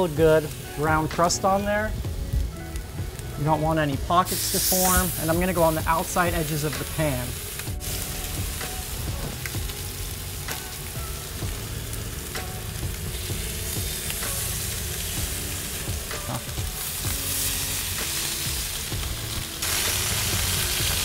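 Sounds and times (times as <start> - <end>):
fish fillets sizzling in skillet: 4.3 - 21.0.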